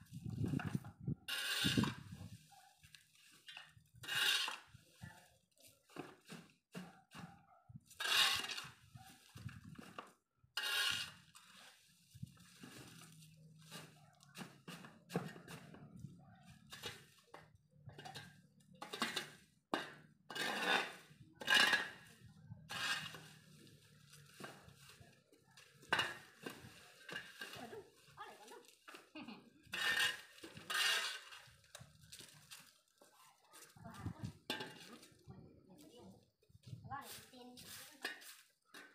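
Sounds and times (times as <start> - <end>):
shovel scraping concrete: 1.2 - 2.4, 3.3 - 4.8, 7.9 - 8.9, 10.6 - 13.0, 13.6 - 15.8, 16.6 - 17.2, 17.9 - 25.0, 25.7 - 27.8, 29.6 - 31.8.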